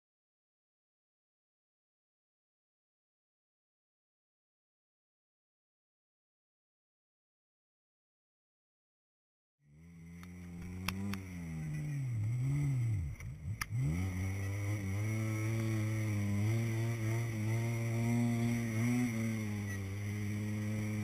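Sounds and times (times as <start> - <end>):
off-road vehicle engine revving: 9.7 - 21.0.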